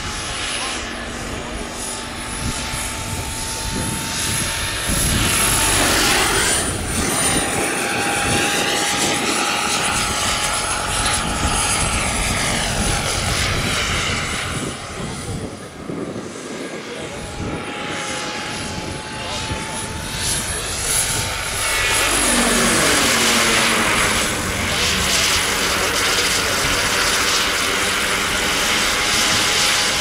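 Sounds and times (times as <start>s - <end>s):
high turbine whistle: 18.3s - 30.0s
rotor rush: 19.6s - 30.0s.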